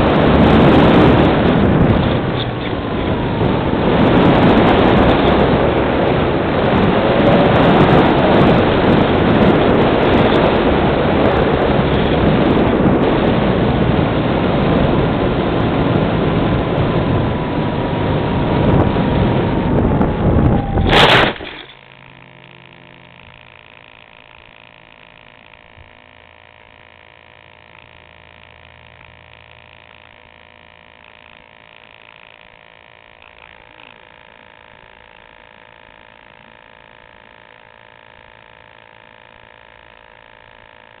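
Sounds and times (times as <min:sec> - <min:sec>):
airflow rushing over microphone: 0:00.0 - 0:21.4
faint whine: 0:00.0 - 0:41.0
low hum: 0:00.0 - 0:41.0.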